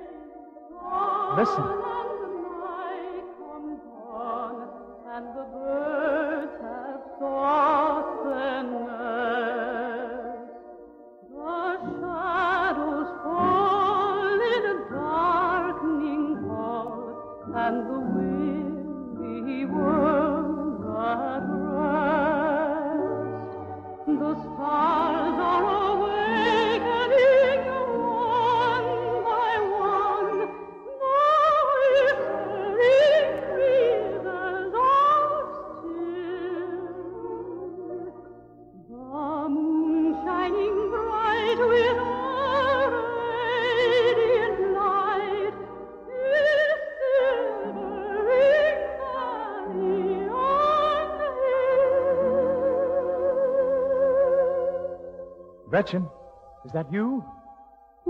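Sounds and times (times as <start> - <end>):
operatic singing with vibrato: 0.0 - 10.5, 11.3 - 57.4
sustained accompaniment: 0.1 - 7.0.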